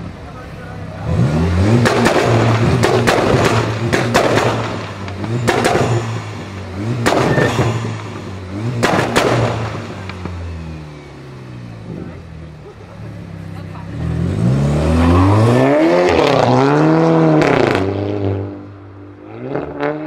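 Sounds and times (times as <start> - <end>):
car engine revving hard: 0.9 - 12.2, 13.6 - 20.0
exhaust pops and bangs: 1.7 - 10.4.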